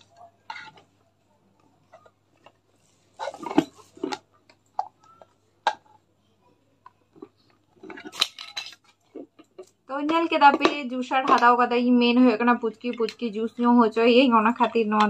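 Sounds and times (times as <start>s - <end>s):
plastic parts clicking and clattering: 1.8s - 6.0s, 6.8s - 11.5s.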